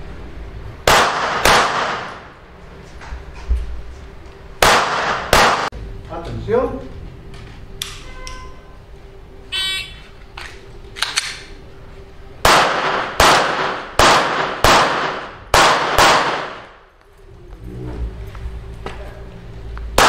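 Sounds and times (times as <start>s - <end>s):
gunshots with short echo: 4.6s - 5.7s, 12.4s - 16.7s.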